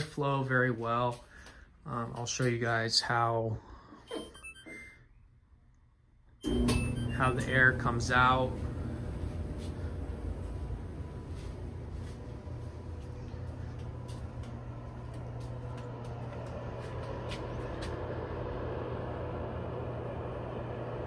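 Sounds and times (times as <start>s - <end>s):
steady low hum: 6.4s - 21.0s
footsteps clicking: 8.5s - 18.0s.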